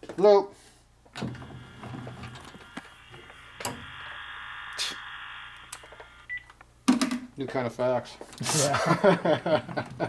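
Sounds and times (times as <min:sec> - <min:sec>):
metal lathe whining: 0:01.2 - 0:06.3
sharp clicks: 0:02.4 - 0:06.7.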